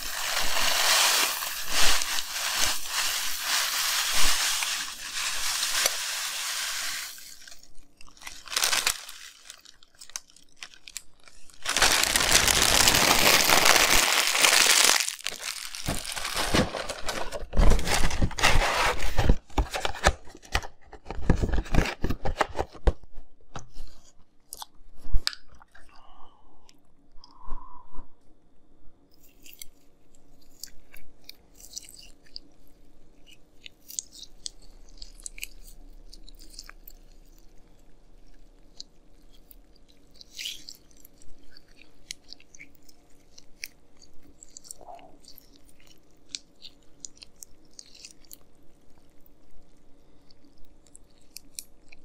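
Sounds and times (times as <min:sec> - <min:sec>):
cereal pouring into glass bowl: 0:00.0 - 0:07.7, 0:08.3 - 0:10.2, 0:11.6 - 0:16.6
plastic bag crinkling: 0:00.0 - 0:20.1.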